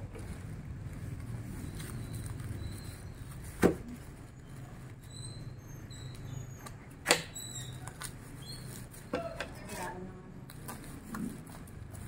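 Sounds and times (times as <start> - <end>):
bubble wrap rustling: 0.0 - 5.1, 7.7 - 12.0.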